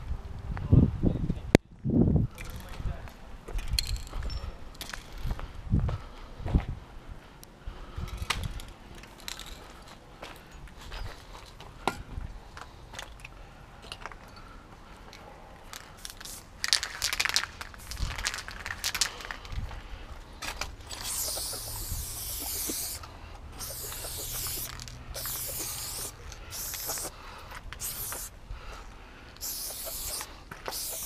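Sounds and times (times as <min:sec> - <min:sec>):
spray can rattling: 0:15.8 - 0:19.6, 0:20.9 - 0:27.2, 0:27.8 - 0:28.3, 0:29.4 - 0:31.0
spray can hissing: 0:16.0 - 0:19.1, 0:20.9 - 0:27.2, 0:27.8 - 0:28.4, 0:29.4 - 0:31.0.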